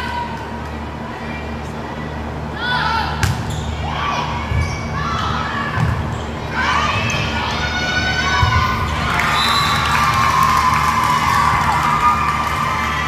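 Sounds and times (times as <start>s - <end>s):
spectators shouting and cheering: 6.4s - 13.0s.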